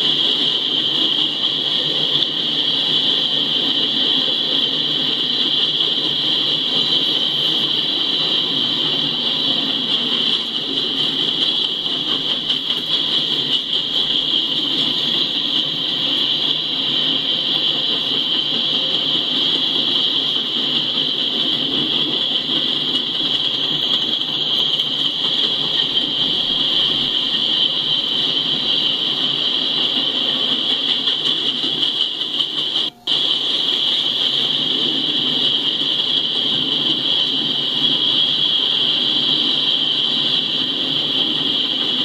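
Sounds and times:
high-pitched whine: 0.0 - 42.0
train wheels rumbling on rail: 0.0 - 42.0.

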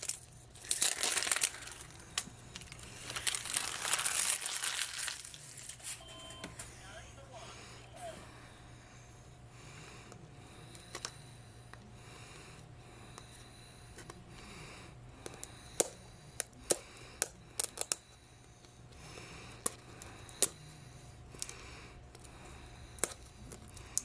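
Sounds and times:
plastic wrap rustling: 0.0 - 6.0.

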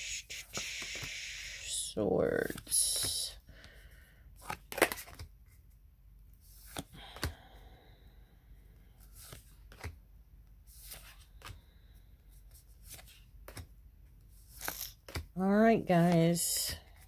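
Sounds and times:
cards sliding off a deck: 0.4 - 1.6, 6.6 - 7.3.

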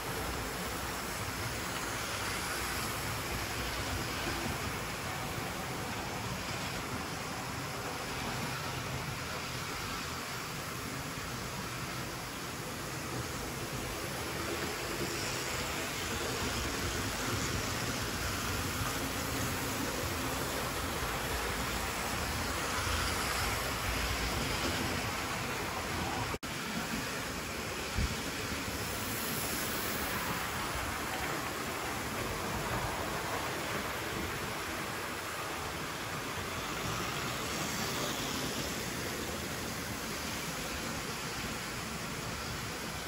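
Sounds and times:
model trains rumbling hiss: 0.0 - 43.0.

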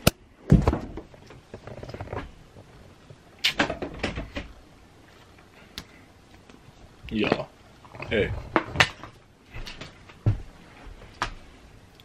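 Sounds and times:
sharp knocks and clatters: 0.0 - 4.5.

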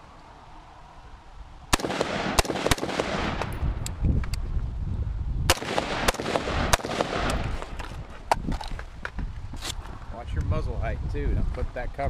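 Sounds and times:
rifle shots: 1.7 - 3.6, 5.5 - 7.8.

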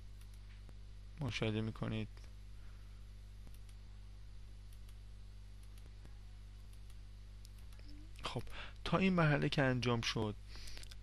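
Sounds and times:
steady low hum: 0.0 - 11.0
computer mouse clicks: 0.2 - 0.7, 3.4 - 3.9, 4.7 - 5.0, 5.6 - 8.5.

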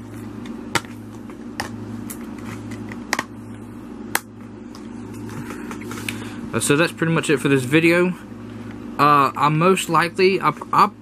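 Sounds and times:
steady fan hum: 0.0 - 11.0.

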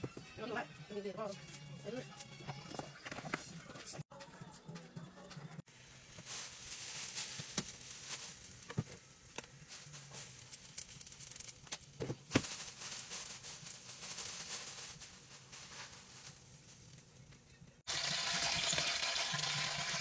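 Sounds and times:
plastic bag rustling: 5.7 - 17.3.

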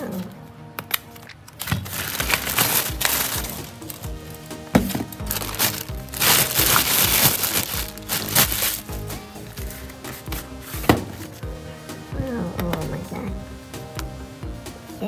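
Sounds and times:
background music: 0.0 - 15.0
cracked glass crackling: 1.5 - 9.0.

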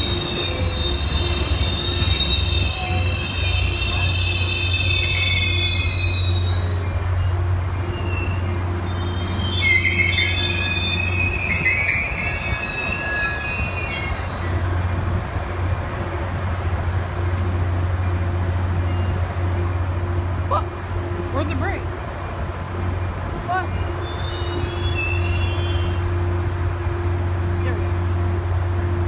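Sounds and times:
train wheels squealing: 0.0 - 14.6, 23.8 - 26.0.

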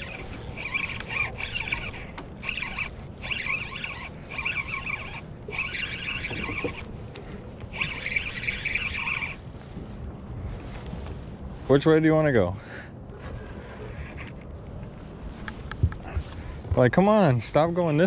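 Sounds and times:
fishing reel drag buzzing: 0.0 - 9.8, 13.1 - 14.5.

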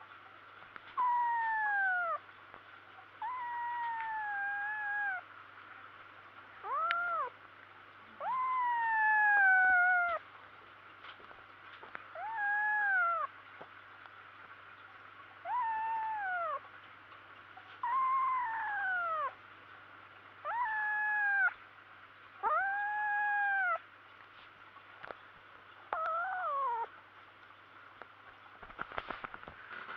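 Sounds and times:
kitten yowling: 1.0 - 2.2, 3.2 - 5.3, 6.6 - 7.4, 8.1 - 10.2, 12.1 - 13.3, 15.4 - 16.6, 17.8 - 19.4, 20.4 - 21.6, 22.4 - 23.8, 25.9 - 26.9.

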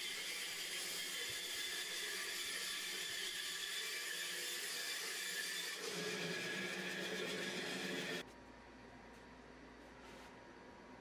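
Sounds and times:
woodshop machinery whirring: 0.0 - 8.2.

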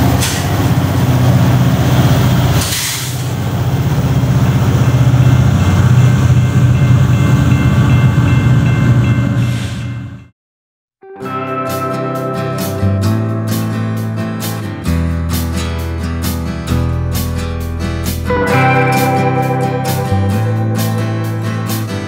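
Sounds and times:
diesel locomotives droning: 0.0 - 10.3
brief hiss: 2.6 - 3.3.

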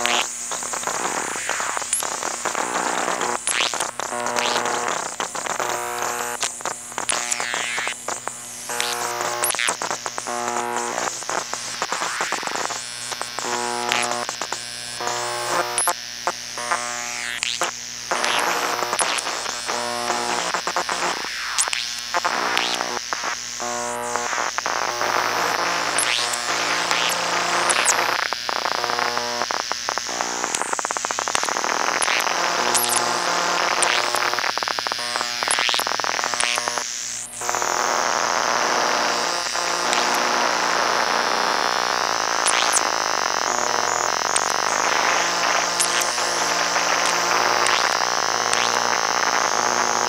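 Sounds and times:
stuttering buzzy electronic tones: 0.0 - 50.0
high whine: 17.6 - 50.0.

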